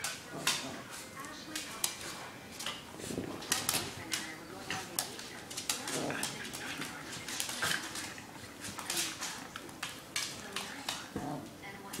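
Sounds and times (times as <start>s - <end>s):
dogs scuffling: 0.0s - 12.0s
claws clicking on wooden floor: 3.4s - 11.2s
dog vocal noises: 5.6s - 9.2s.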